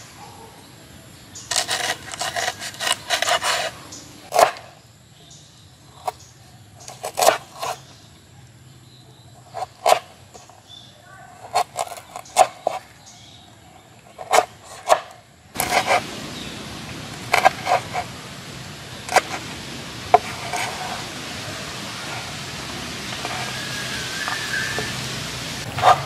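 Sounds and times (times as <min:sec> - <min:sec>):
knife chopping on wooden board: 0:01.5 - 0:04.7, 0:06.9 - 0:07.8, 0:14.2 - 0:16.1, 0:17.2 - 0:18.1
steady hiss: 0:15.6 - 0:26.0.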